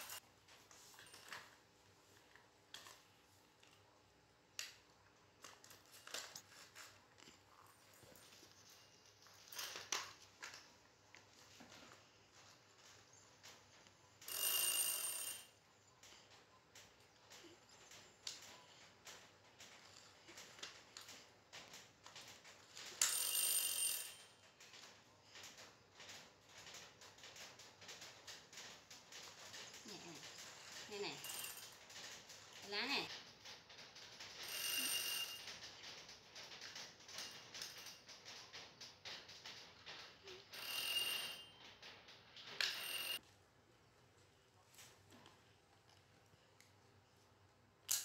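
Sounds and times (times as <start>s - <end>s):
electronic ring: 14.2s - 15.5s, 23.0s - 24.3s, 31.2s - 31.6s, 34.4s - 35.5s, 40.6s - 41.6s, 42.6s - 43.2s.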